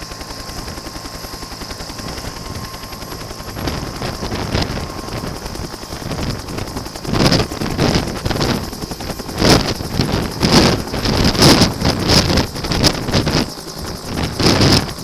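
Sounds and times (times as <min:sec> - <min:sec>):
helicopter turbine and rotor: 0:00.0 - 0:15.0
rotor downwash buffeting microphone: 0:02.0 - 0:15.0.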